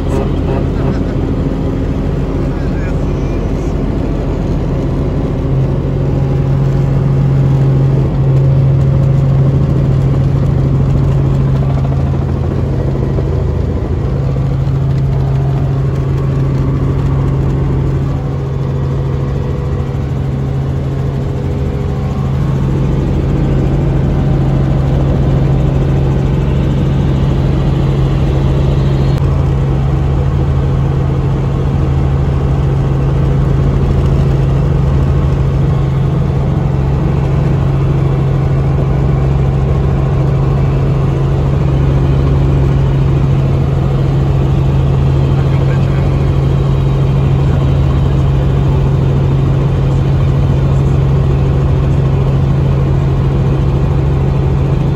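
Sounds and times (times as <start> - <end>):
helicopter rotor and engine drone: 0.0 - 54.9.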